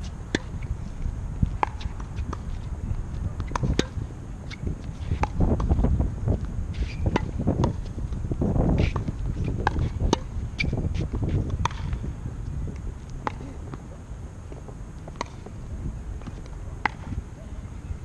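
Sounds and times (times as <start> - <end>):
wind rumble on microphone: 0.0 - 18.0
tennis balls bouncing on court: 0.3 - 0.7, 1.4 - 13.9, 14.5 - 15.6, 16.2 - 17.2
tennis balls striking rackets: 0.3 - 0.7, 1.4 - 2.7, 3.3 - 12.1, 12.7 - 13.9, 14.5 - 15.5, 16.2 - 17.2.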